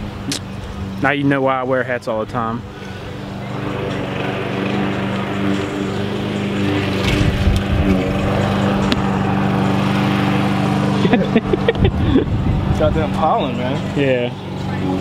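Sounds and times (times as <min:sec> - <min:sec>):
engine droning steadily: 0:00.0 - 0:15.0.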